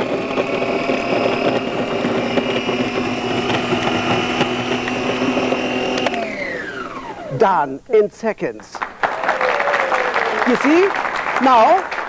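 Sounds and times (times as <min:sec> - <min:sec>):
food processor motor whining: 0:00.0 - 0:07.5.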